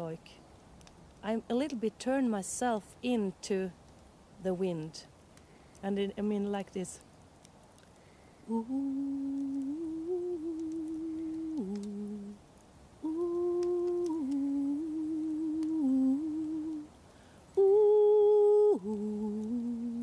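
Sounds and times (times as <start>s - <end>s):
woman singing wordless long notes: 8.4s - 12.4s, 13.0s - 20.0s.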